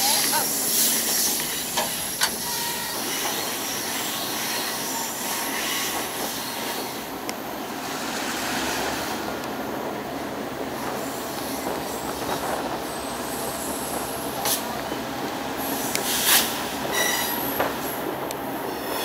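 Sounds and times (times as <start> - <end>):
train wheels rumbling on rails: 0.0 - 19.0
high-pitched wheel squeal: 2.2 - 5.9, 16.9 - 17.5.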